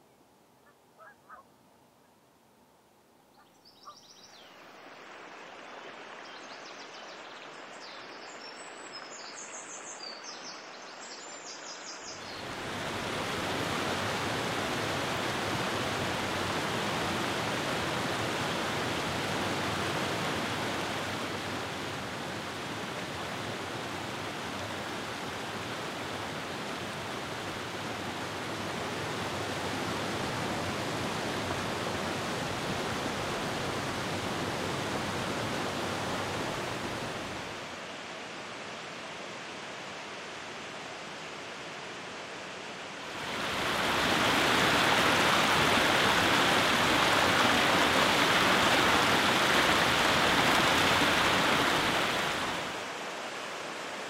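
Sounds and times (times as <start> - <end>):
running water: 12.1 - 42.1, 42.7 - 54.0
waterfall crashing over rock: 43.1 - 53.0.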